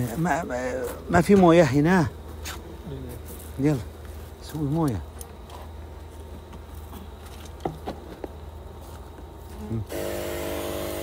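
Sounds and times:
loud hissing hum: 9.8s - 11.0s
bees buzzing: 9.9s - 11.0s.

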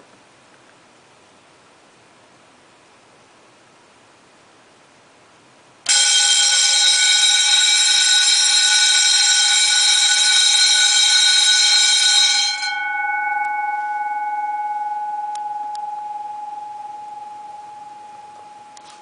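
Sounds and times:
electric bell ringing: 5.9s - 19.0s.

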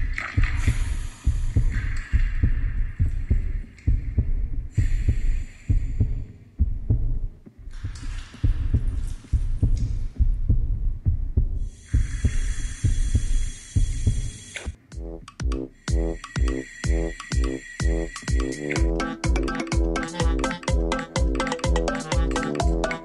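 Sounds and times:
deep throbbing thumps: 0.0s - 22.9s.

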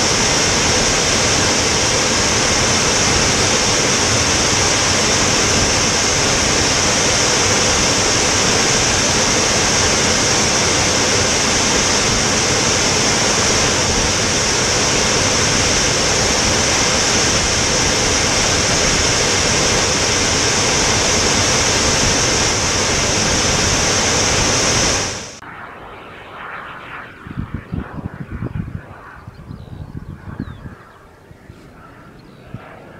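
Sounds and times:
airflow and engine roar: 0.0s - 32.9s.

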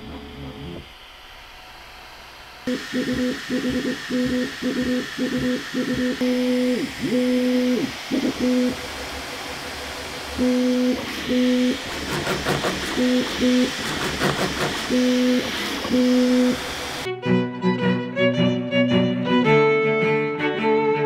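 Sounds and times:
printer motors humming tones: 0.0s - 17.1s
toolhead clicking rapidly: 11.8s - 15.6s.

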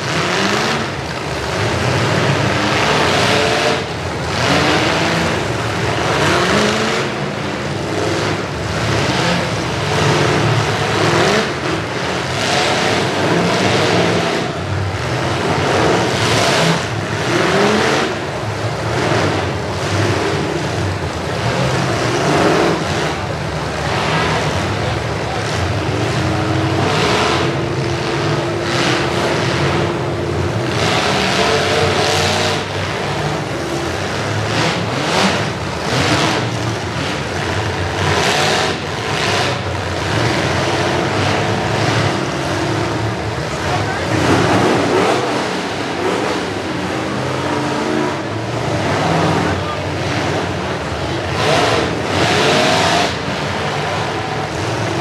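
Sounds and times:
car engines revving: 0.0s - 55.0s.

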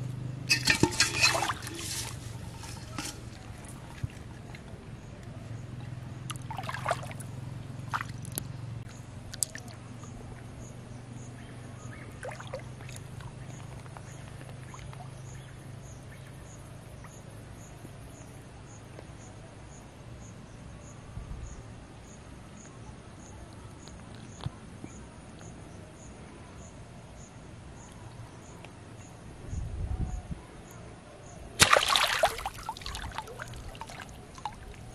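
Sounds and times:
low steady hum: 0.0s - 15.6s, 31.5s - 34.9s.

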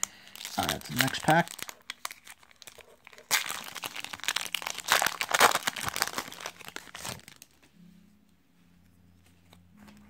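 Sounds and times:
foil wrapper crinkling: 0.0s - 7.6s.

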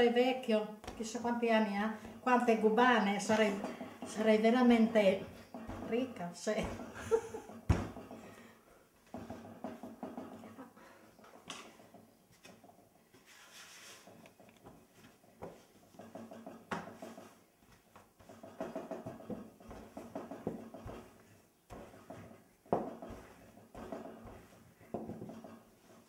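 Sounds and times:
rolling pin rolling dough: 0.8s - 8.3s, 9.0s - 10.5s, 11.2s - 26.0s
wood knocking on wood: 3.2s - 8.3s, 9.0s - 10.6s, 15.4s - 17.4s, 18.0s - 26.0s.

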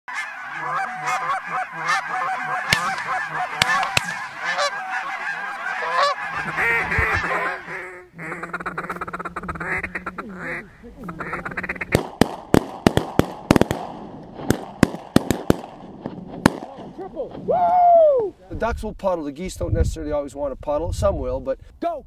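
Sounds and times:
geese honking: 0.1s - 12.0s
ducks quacking: 0.1s - 12.1s
sharp cracks: 2.6s - 4.6s, 11.7s - 17.5s.

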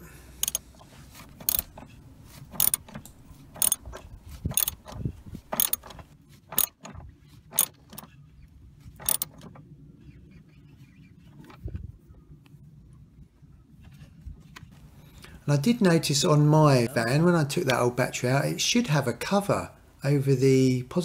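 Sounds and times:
ratchet wrench clicking: 0.4s - 0.6s, 1.4s - 1.8s, 2.5s - 5.9s, 6.6s - 7.0s, 7.6s - 8.1s, 9.0s - 9.4s.

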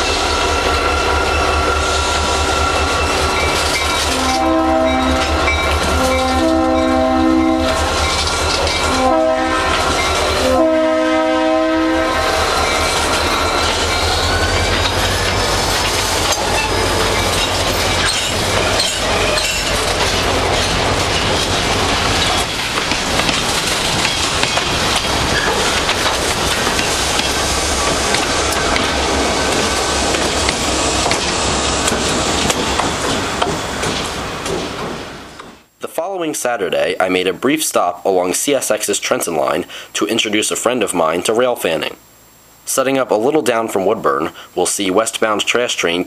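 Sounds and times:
train wheels clickety-clack: 0.0s - 6.6s, 7.6s - 9.0s, 12.4s - 35.6s
freight train cars rolling past: 0.0s - 35.7s
three-chime train horn: 4.0s - 8.0s, 8.7s - 12.6s.

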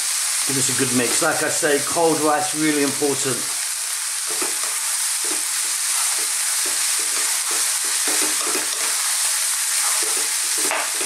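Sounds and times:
rice and vegetables sizzling in pan: 0.0s - 11.0s
wooden spoon scraping pan: 4.3s - 11.0s.

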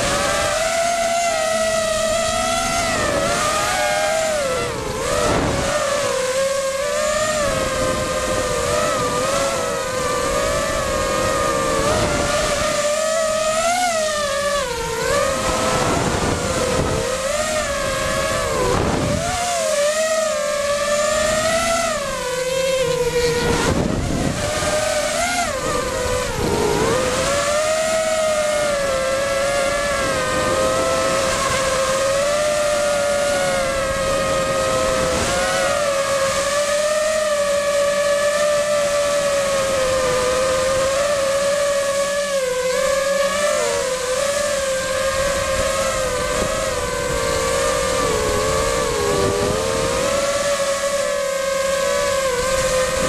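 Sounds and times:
drone motors whining: 0.0s - 53.0s.

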